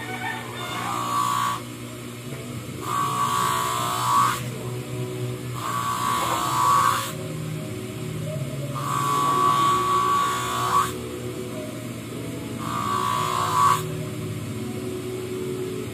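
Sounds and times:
blade grinding hiss: 0:00.8 - 0:01.7, 0:02.8 - 0:04.6, 0:05.5 - 0:07.3, 0:08.7 - 0:11.1, 0:12.6 - 0:14.0
grinding wheel motor humming: 0:00.8 - 0:15.9.

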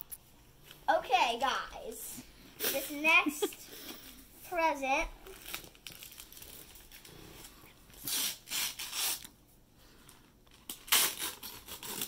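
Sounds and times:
wrapping paper tearing and crinkling: 0:05.2 - 0:09.3, 0:10.5 - 0:12.0.

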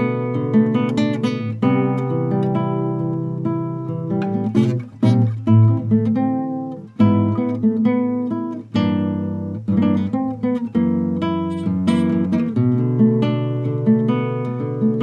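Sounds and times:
classical guitar fingerstyle: 0:00.0 - 0:15.0.

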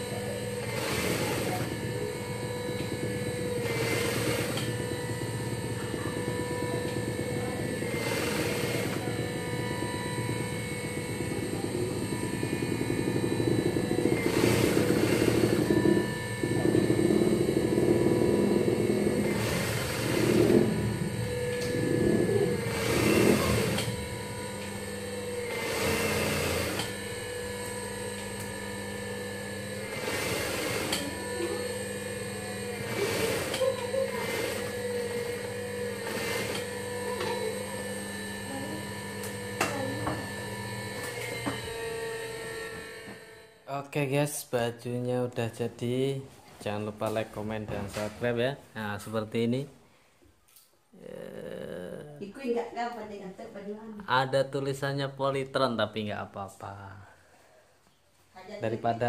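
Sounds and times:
sewing machine motor humming: 0:00.0 - 0:43.7
sewing machine stitching: 0:00.4 - 0:09.2, 0:11.2 - 0:24.7, 0:25.4 - 0:27.0, 0:29.7 - 0:37.6.

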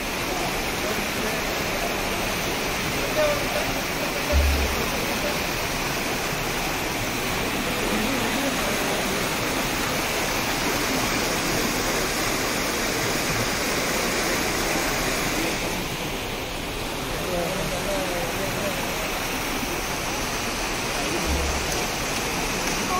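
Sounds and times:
floodwater rushing through drain: 0:00.0 - 0:22.9
low thump: 0:04.3 - 0:04.8.

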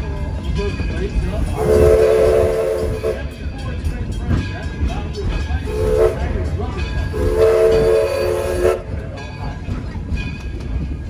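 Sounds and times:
low rumble of moving train: 0:00.0 - 0:11.0
steam locomotive whistle: 0:01.6 - 0:03.4, 0:05.7 - 0:06.4, 0:07.1 - 0:09.0.

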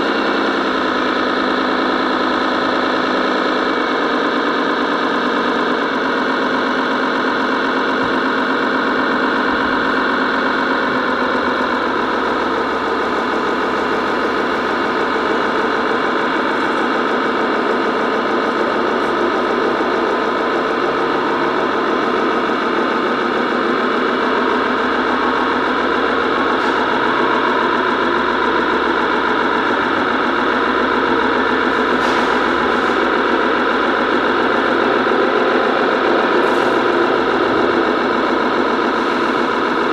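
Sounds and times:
toy truck drive train drone: 0:00.0 - 0:39.9.

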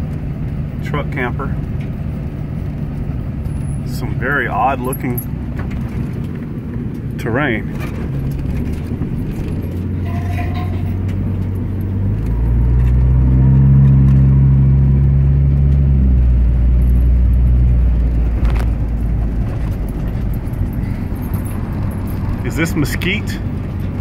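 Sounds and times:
vehicle engine and road noise: 0:00.0 - 0:24.0.

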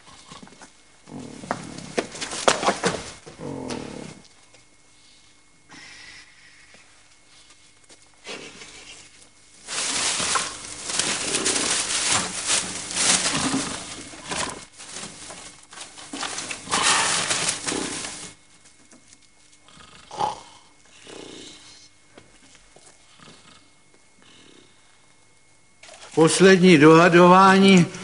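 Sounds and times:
dry straw rustling and crackling: 0:09.2 - 0:19.3.

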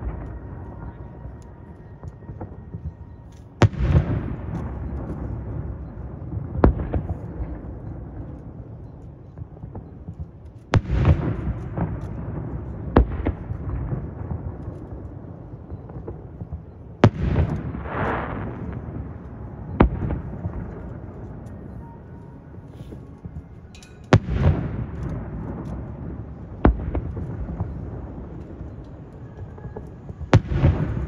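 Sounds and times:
fireworks booming with rumbling echo: 0:02.0 - 0:08.7, 0:09.4 - 0:21.8, 0:22.6 - 0:31.0.

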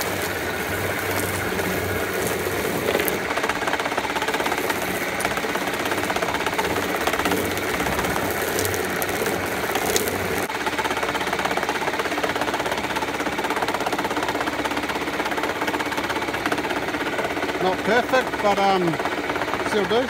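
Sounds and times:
chicken plucker clattering: 0:00.0 - 0:10.5.

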